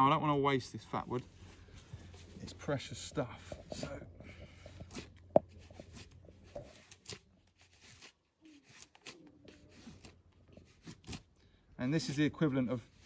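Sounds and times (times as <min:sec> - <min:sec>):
knife blade scraping wood: 0:03.4 - 0:11.3.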